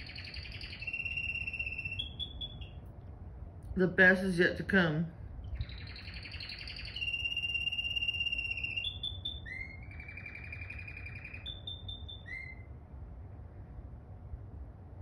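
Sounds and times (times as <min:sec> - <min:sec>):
canary singing trills and whistles: 0:00.0 - 0:02.8, 0:05.4 - 0:12.8.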